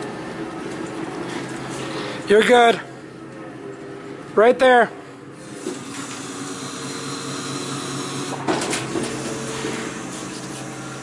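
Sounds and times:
forklift engine running: 0.0 - 11.0
clunk: 8.4 - 10.5.

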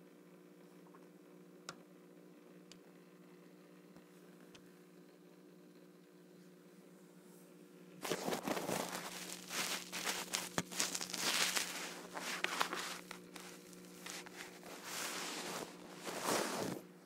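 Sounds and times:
steady low hum: 0.0 - 17.0
phone handling crackles: 8.0 - 16.8.

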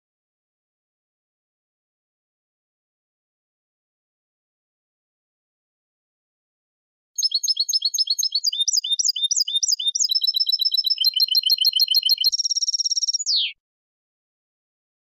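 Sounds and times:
goldfinch singing: 7.2 - 13.6.

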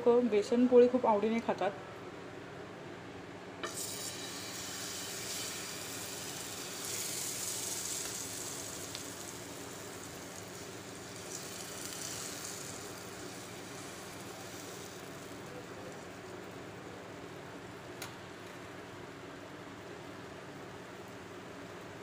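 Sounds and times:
batter sizzling in oil: 3.6 - 16.7.

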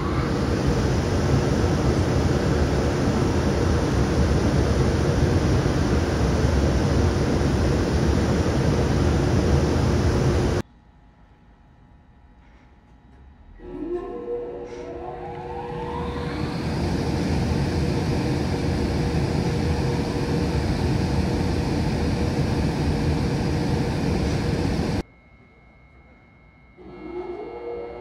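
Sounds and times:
locomotive cooling blowers rushing: 0.0 - 10.6, 13.6 - 25.0.

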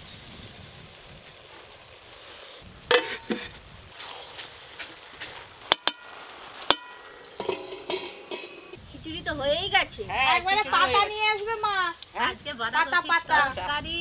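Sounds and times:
metal spatula scraping in wok: 2.9 - 3.5, 5.8 - 8.8.

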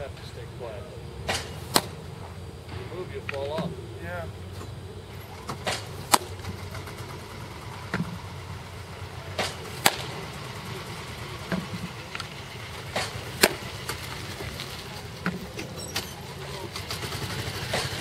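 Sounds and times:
low steady hum: 0.0 - 16.9
baseball popping into leather mitt: 1.2 - 2.0, 5.5 - 6.4, 9.4 - 10.2, 12.9 - 14.6.

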